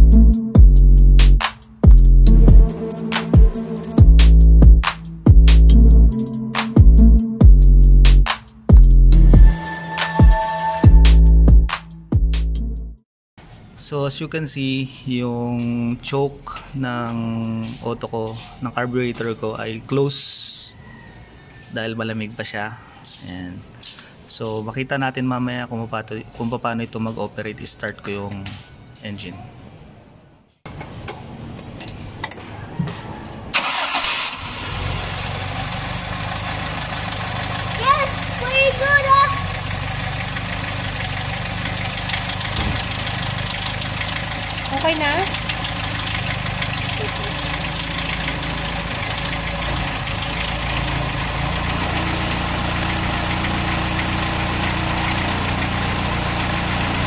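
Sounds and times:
car engine starting and idling: 33.5 - 57.0.

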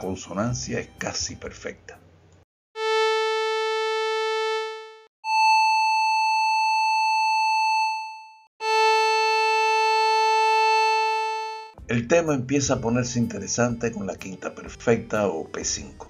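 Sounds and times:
synthesized tones: 8.6 - 11.8.

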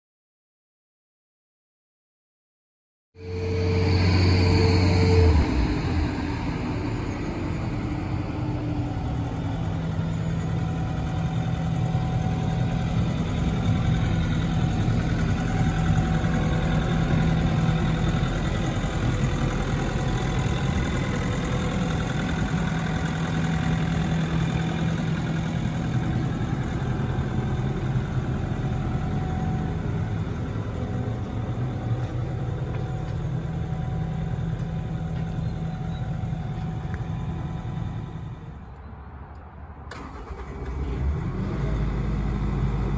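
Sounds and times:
diesel engine idling: 3.2 - 42.9.

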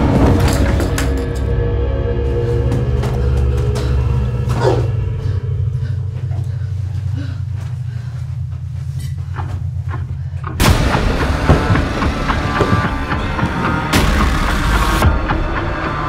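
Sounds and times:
low bass drone: 0.0 - 7.5, 10.4 - 16.0
loud dense music: 10.6 - 16.0.

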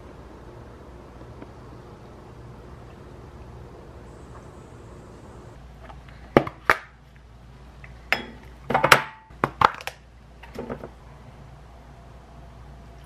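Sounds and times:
dishes and utensils knocking: 8.1 - 9.3.

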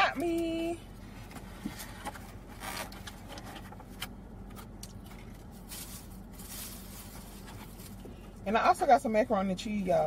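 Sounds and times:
steady low hum: 0.0 - 10.0
foam containers scraping and rustling: 5.5 - 8.1.

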